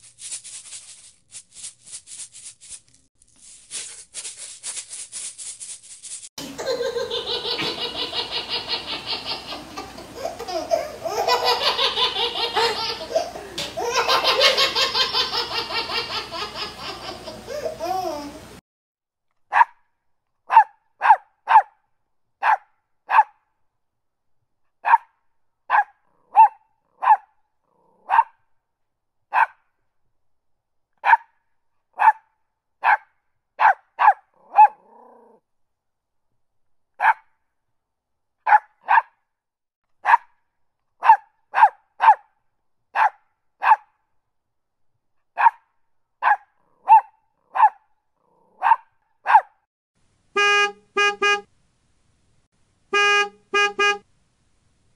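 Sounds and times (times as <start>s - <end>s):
dog barking: 19.5s - 19.8s, 20.5s - 21.8s, 22.4s - 23.4s, 24.8s - 25.1s, 25.7s - 27.3s, 28.0s - 28.4s, 29.3s - 29.6s, 31.0s - 31.4s, 32.0s - 34.9s, 37.0s - 37.3s, 38.4s - 39.2s, 40.0s - 40.3s, 41.0s - 42.3s, 43.0s - 43.9s, 45.4s - 47.8s, 48.4s - 49.6s.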